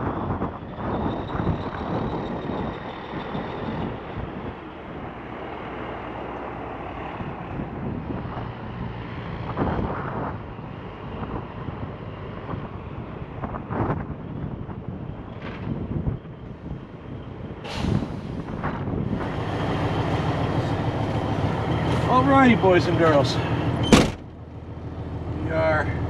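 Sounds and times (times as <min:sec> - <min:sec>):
wind buffeting microphone: 0:00.0 - 0:26.0
diesel truck engine running: 0:14.4 - 0:26.0.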